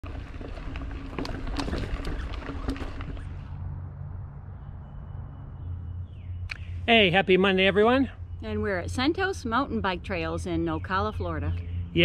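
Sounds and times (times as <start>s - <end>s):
bike clicks and rattles: 0.0s - 3.6s
mountain bike rumbling on dirt: 0.0s - 3.7s.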